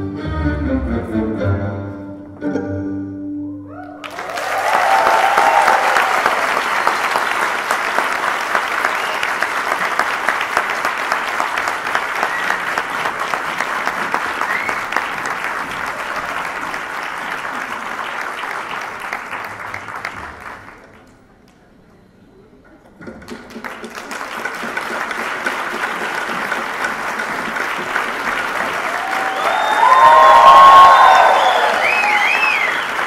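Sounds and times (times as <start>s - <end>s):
string ensemble playing tango: 0.0s - 3.4s
audience applause: 3.8s - 21.2s, 23.3s - 33.0s.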